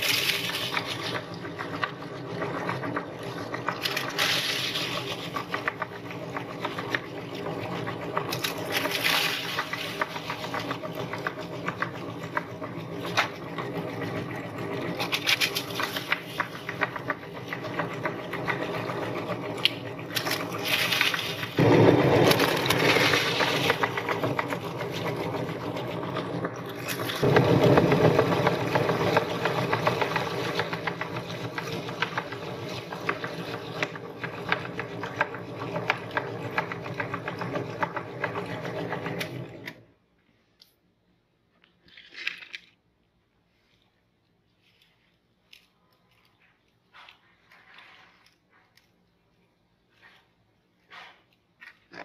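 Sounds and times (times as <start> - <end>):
meat grinder motor hum: 0.0 - 39.8
cookies crackling in grinder: 0.0 - 40.1, 41.5 - 43.3, 44.1 - 52.0.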